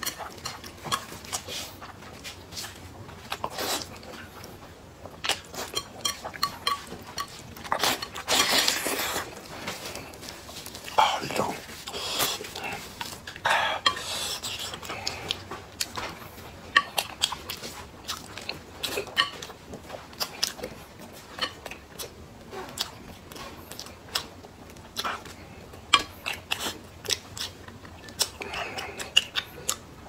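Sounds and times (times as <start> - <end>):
person chewing: 0.0 - 30.0.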